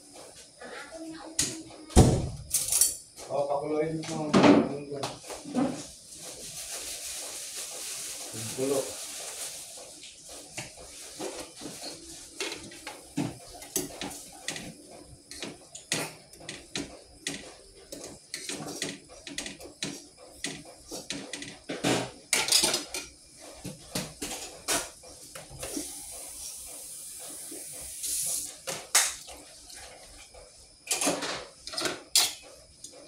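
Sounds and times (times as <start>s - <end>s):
dishes and cutlery clinking: 11.2s - 25.0s, 30.8s - 32.4s.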